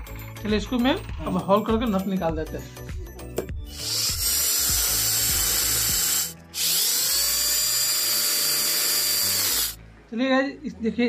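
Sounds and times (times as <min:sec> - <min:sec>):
electric drill running: 0:03.7 - 0:09.8.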